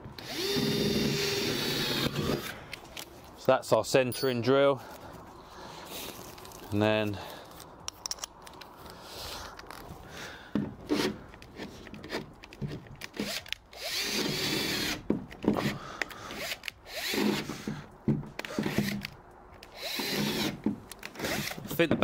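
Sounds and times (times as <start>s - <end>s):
cordless drill boring wood: 0.2s - 2.5s, 13.2s - 15.0s, 16.4s - 17.7s, 19.7s - 20.6s, 21.2s - 21.6s.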